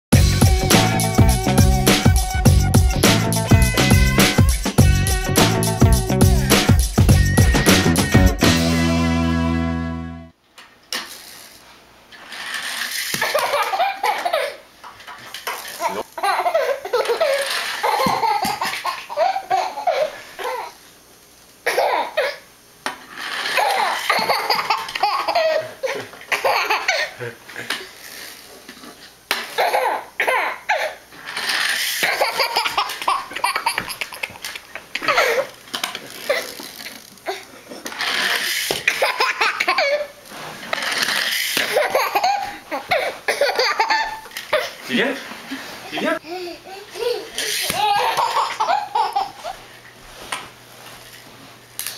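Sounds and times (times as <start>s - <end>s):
toddler belly laughing: 13.2s - 14.6s, 15.8s - 20.8s, 23.6s - 27.8s, 29.5s - 31.0s, 32.0s - 35.5s, 38.3s - 40.2s, 41.6s - 44.8s, 45.8s - 49.6s.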